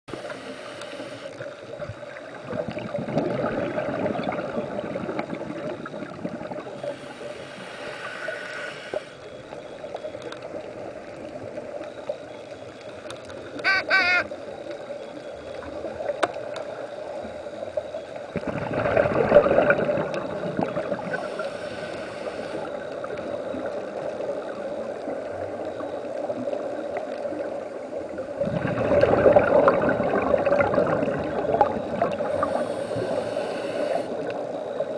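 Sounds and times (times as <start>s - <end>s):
hiss of inhaled air underwater: 0.1s - 1.6s, 2.5s - 9.5s, 17.0s - 24.7s, 28.3s - 34.8s
rush of exhaled bubbles: 1.7s - 7.0s, 18.3s - 25.6s, 26.2s - 34.3s.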